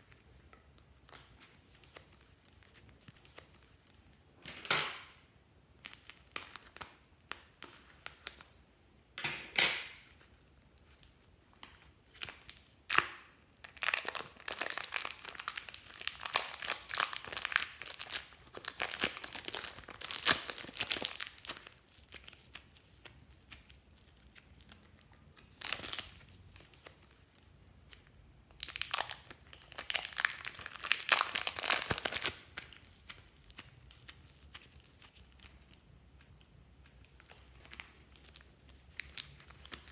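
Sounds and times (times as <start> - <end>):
plastic bags crinkling and tearing: 10.0 - 27.3, 28.0 - 39.9.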